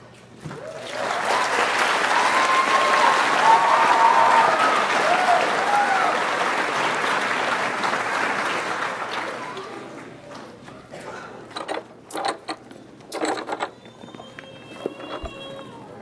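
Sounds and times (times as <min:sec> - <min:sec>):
people whooping: 0:00.5 - 0:06.4
audience applauding: 0:00.6 - 0:10.2.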